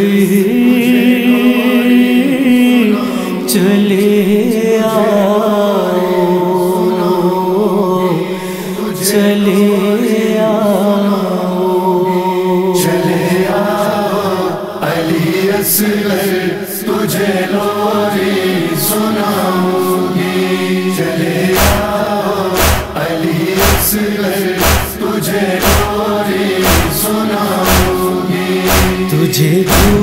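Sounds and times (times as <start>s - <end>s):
voices humming and chanting: 0.1s - 30.0s
deep thumps: 21.6s - 29.1s, 29.7s - 30.0s.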